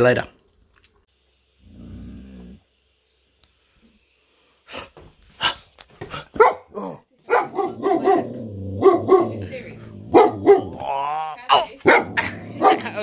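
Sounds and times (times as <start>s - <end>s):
dog barking sharply: 6.3s - 9.4s, 10.1s - 10.8s, 11.5s - 12.8s.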